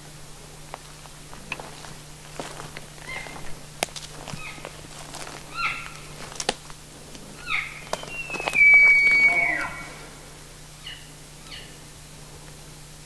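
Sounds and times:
elk call mews: 5.5s - 6.1s, 7.4s - 11.8s.

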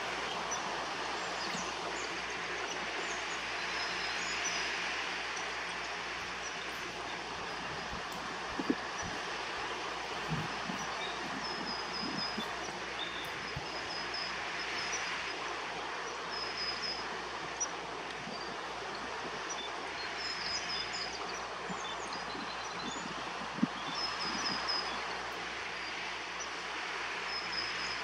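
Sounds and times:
small bird chirping: 0.0s - 15.5s
steady rushing noise: 0.0s - 28.0s.

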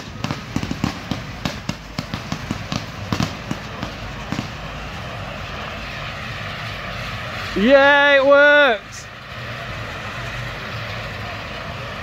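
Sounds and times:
fireworks cracking and popping: 0.0s - 5.2s
firework fountain hissing: 0.0s - 12.0s.

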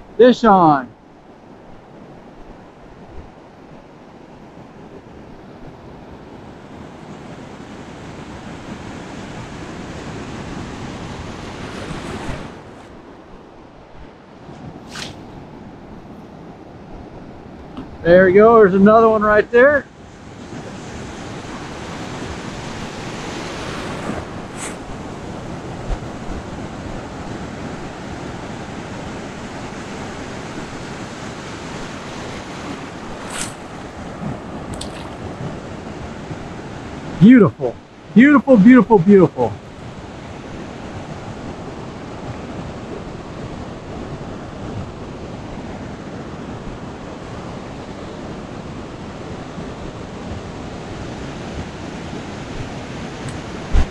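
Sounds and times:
surf washing in shallow water: 0.0s - 53.9s
wind buffeting microphone: 20.1s - 37.2s, 39.6s - 53.9s
water splash: 32.6s - 35.4s.

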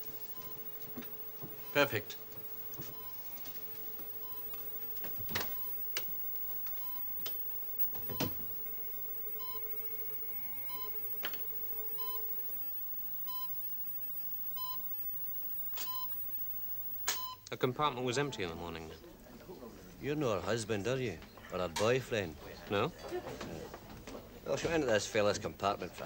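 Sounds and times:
low steady tone: 0.0s - 17.4s
short electronic beeps: 0.0s - 17.4s
sharp clicks: 2.0s - 8.8s.

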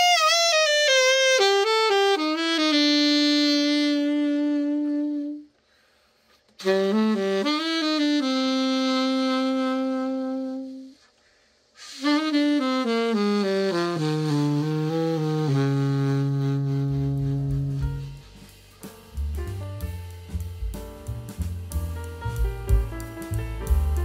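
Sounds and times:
alto saxophone phrases: 0.0s - 5.6s, 6.6s - 11.1s, 11.8s - 18.4s.

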